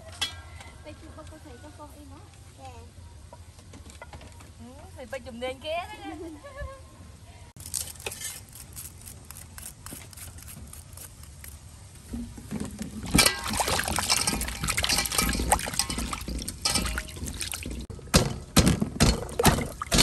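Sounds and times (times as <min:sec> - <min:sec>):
water splashing in a steel basin: 0:13.0 - 0:17.9, 0:19.0 - 0:20.0.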